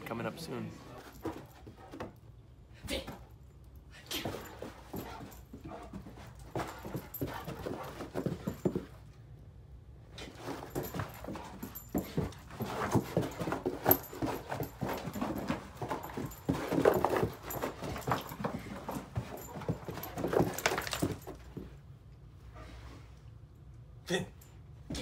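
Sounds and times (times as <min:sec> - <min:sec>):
dog moving on carpet: 0:04.2 - 0:09.0, 0:10.2 - 0:21.8.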